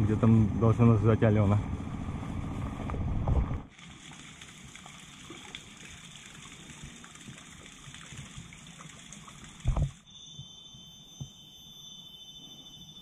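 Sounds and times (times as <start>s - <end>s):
forest insects droning: 9.5s - 13.0s.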